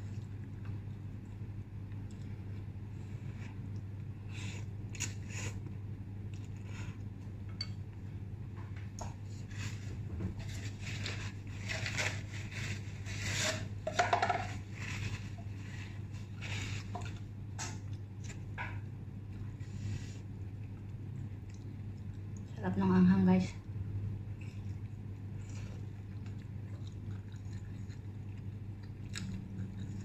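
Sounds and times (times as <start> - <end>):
low hum: 0.0 - 30.0
paper tissue rustling: 14.6 - 16.9.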